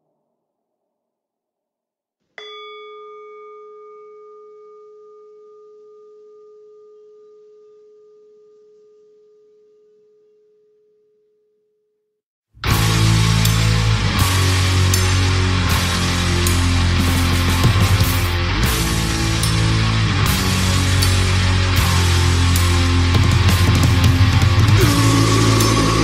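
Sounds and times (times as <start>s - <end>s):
metallic bell tone ringing: 2.4s - 7.2s
heavy metal music: 12.6s - 26.0s.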